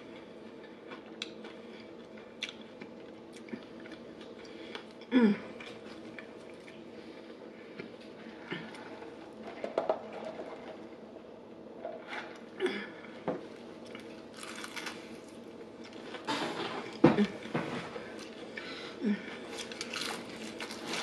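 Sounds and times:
chewing crispy chicken: 13.8s - 16.2s, 19.3s - 21.0s
person humming: 19.0s - 19.4s.

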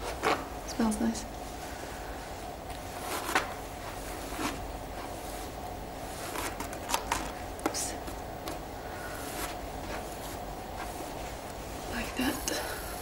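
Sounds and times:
faint steady hum: 0.0s - 13.0s
comb rasping through hair: 2.9s - 12.2s.

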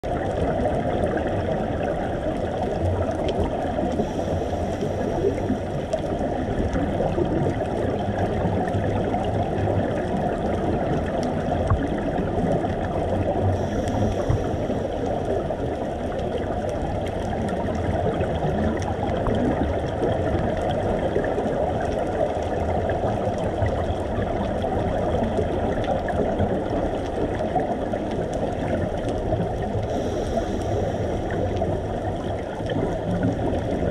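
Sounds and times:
muffled underwater rushing: 0.0s - 33.9s
faint hiss: 13.4s - 15.8s, 29.7s - 32.9s.

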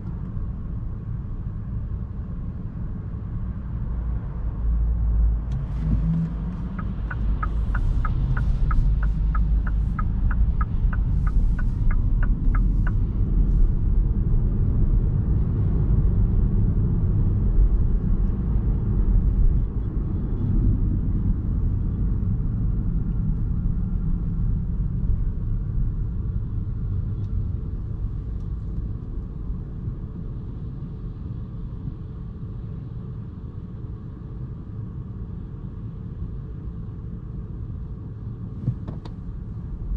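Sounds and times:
road and tyre rumble in car: 0.0s - 39.9s
turn signal ticking: 5.5s - 13.0s.

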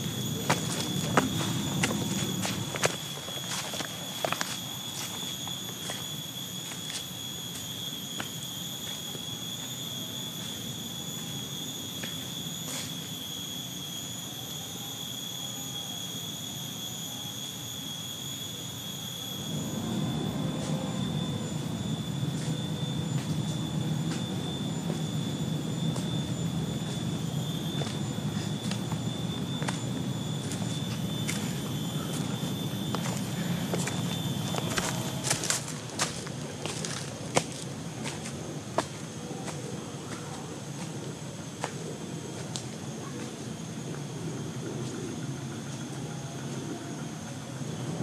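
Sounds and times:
low rumbling noise: 0.0s - 5.0s, 19.4s - 42.4s
footsteps on trail: 0.0s - 9.0s, 26.8s - 43.4s
cicadas droning: 0.0s - 48.0s.

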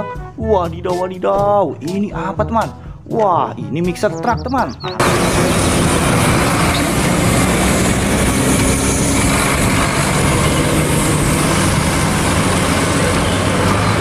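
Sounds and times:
diesel truck engine driving past: 4.3s - 14.0s
road noise hiss: 5.0s - 14.0s.

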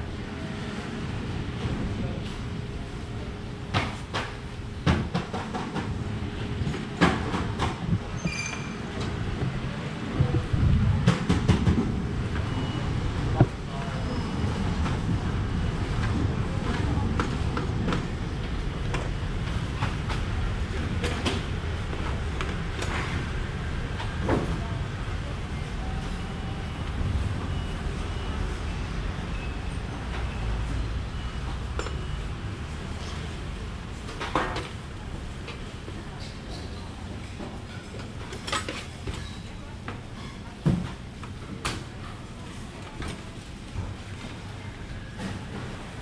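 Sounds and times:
low rumble: 10.1s - 11.1s.

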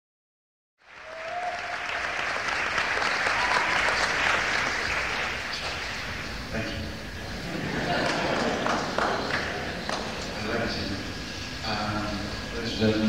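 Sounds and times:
audience applauding: 0.8s - 6.5s, 7.2s - 10.6s.

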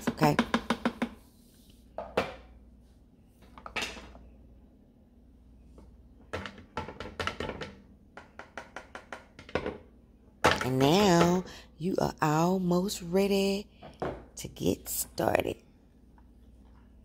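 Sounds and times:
kitchen utensils knocking: 10.4s - 11.4s.

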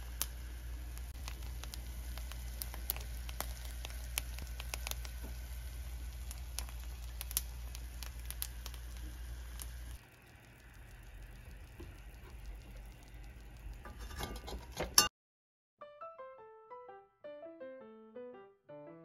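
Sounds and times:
rice crackling and sizzling: 0.0s - 15.1s
steady low hum: 0.0s - 15.1s.

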